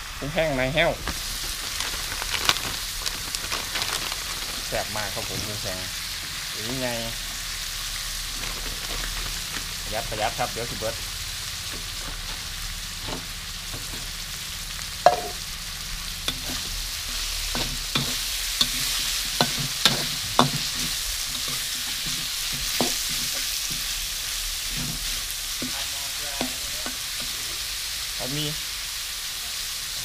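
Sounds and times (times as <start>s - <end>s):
food sizzling in oil: 0.0s - 30.0s
spatula scraping wok: 4.3s - 28.2s.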